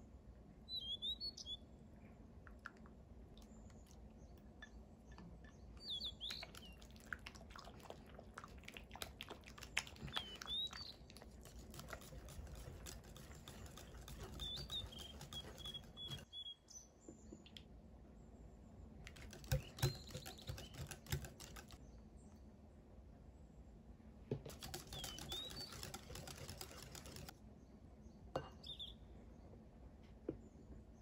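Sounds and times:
spatula scraping glass bowl: 11.4 - 16.3.

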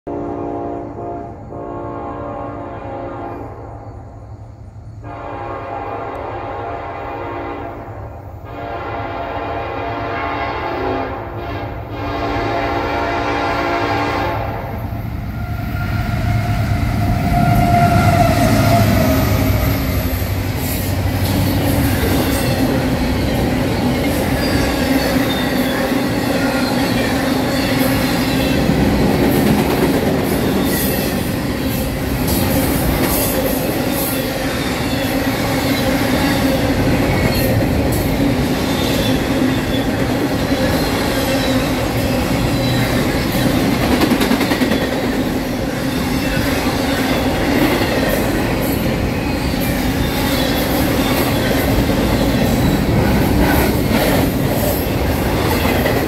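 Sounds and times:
train air horn blasts: 0.1 - 4.0, 5.0 - 21.3
diesel locomotives rumbling: 0.1 - 56.0
train wheels clattering on rails: 17.1 - 56.0.

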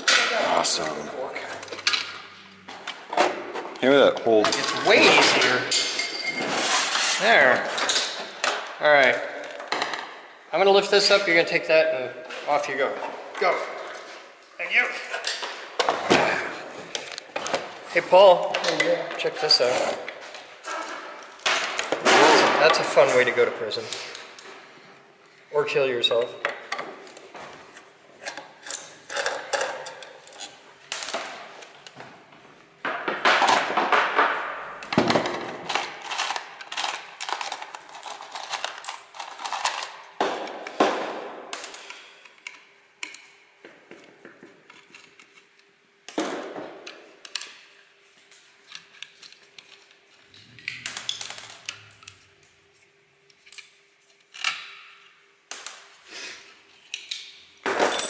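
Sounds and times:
tools and metal parts clattering: 4.4 - 8.6, 28.6 - 31.0, 35.0 - 40.1, 56.9 - 58.0.

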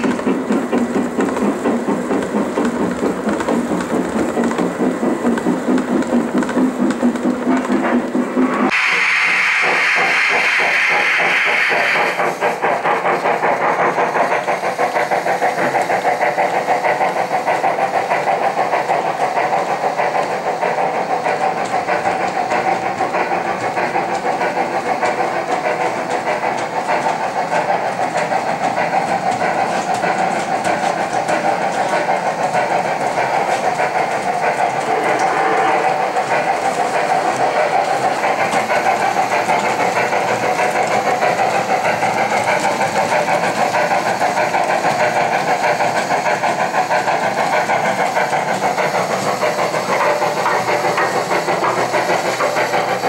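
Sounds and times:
model steam locomotive chuffing: 0.0 - 53.0
steam hissing: 0.0 - 53.0.

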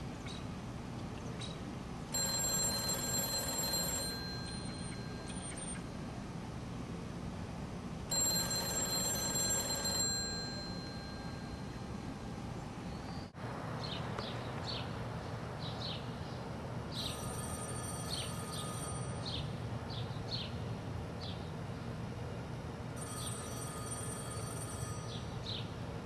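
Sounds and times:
payphone electronic ringing: 2.1 - 5.8, 8.1 - 12.2, 17.0 - 19.4, 23.0 - 25.6.

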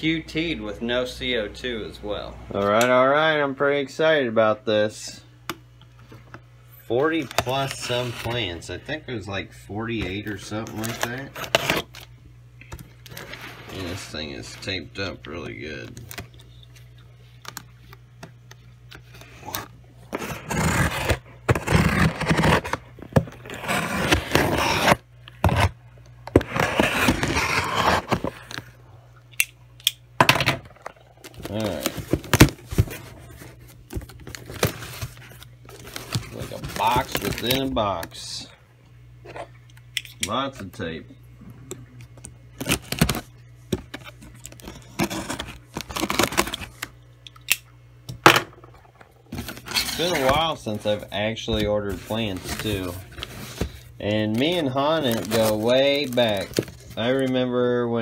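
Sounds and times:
packing tape tearing off cardboard: 19.4 - 28.6, 31.2 - 37.7, 42.6 - 43.3, 44.0 - 46.9, 51.9 - 57.2
packing tape pulled off box: 26.4 - 28.6, 44.5 - 46.8, 54.4 - 57.0.

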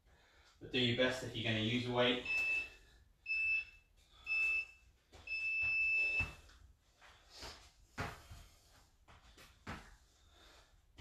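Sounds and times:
soft footfalls on rubber floor: 4.4 - 10.0.

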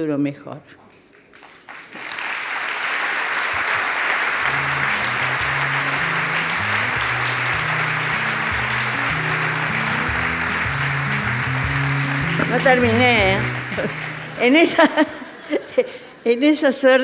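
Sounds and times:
audience applauding: 1.0 - 15.2
music with low bass: 5.0 - 14.0.

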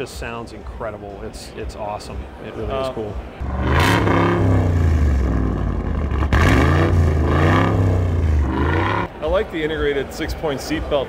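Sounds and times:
truck engine revving: 3.4 - 9.2.

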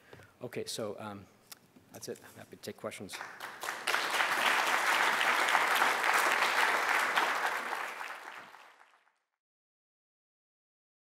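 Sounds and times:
audience applauding: 3.2 - 9.2.

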